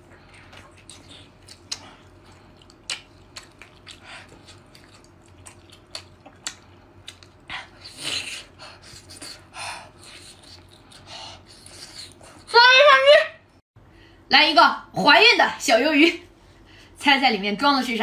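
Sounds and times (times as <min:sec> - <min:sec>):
close-miked chewing and biting: 0:00.2 - 0:12.5.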